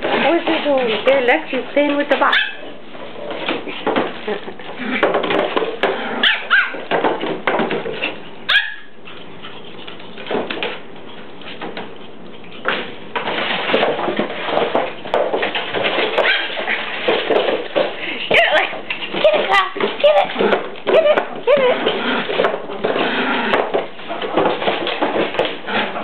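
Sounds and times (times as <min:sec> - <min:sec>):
dogs scuffling: 0:00.0 - 0:26.0
small dogs barking and yipping: 0:02.2 - 0:02.7, 0:06.2 - 0:06.9, 0:08.5 - 0:09.2, 0:16.2 - 0:16.8.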